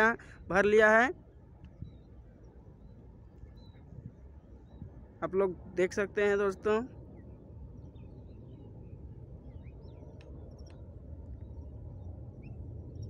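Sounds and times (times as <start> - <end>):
distant jet engine rumble: 0.0 - 13.0
faint bird chirps: 1.7 - 5.3, 6.9 - 13.0.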